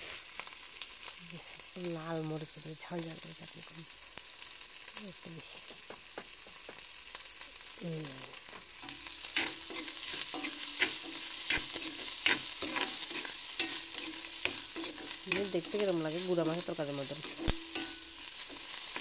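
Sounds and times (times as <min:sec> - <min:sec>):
food sizzling in a wok: 0:00.0 - 0:19.0
metal spoon scraping a pan: 0:08.4 - 0:19.0.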